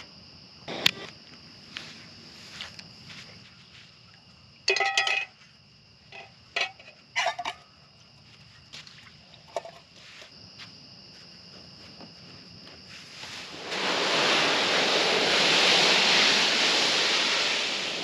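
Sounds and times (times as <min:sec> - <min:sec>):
metal pot and bowl clinking: 0:04.7 - 0:05.4.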